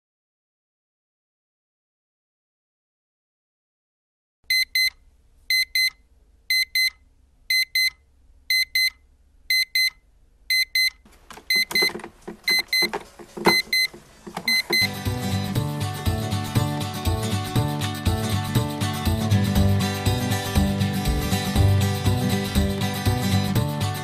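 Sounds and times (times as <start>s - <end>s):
alarm clock beeping: 4.5s - 15.0s
rustling and thumps: 11.0s - 14.9s
hand hitting clock: 11.3s - 14.9s.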